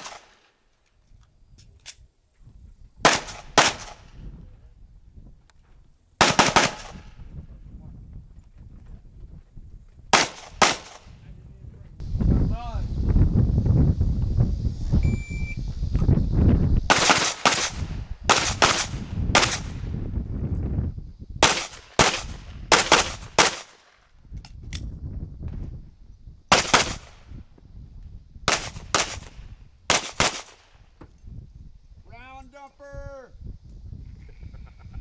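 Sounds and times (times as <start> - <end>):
pistol shots with echo: 0.0 - 0.4, 3.0 - 4.0, 6.2 - 7.0, 10.1 - 11.1, 16.9 - 19.8, 21.4 - 23.7, 26.5 - 27.1, 28.5 - 29.3, 29.9 - 30.7.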